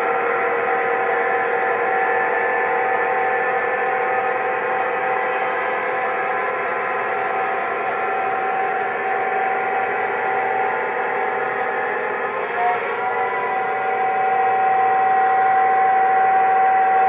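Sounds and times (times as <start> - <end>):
electronic diesel engine drone: 0.0 - 17.0
model train rolling on track: 0.0 - 17.0
train horn: 12.5 - 17.0.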